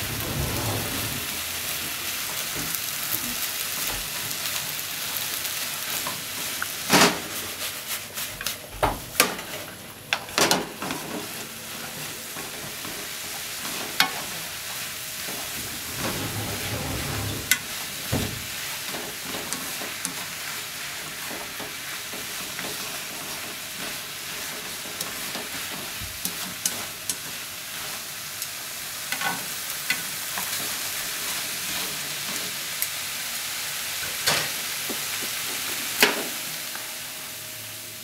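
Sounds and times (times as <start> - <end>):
wooden spatula scraping: 0.0 - 2.4, 10.8 - 27.0
vegetables sizzling in a pan: 0.0 - 38.0.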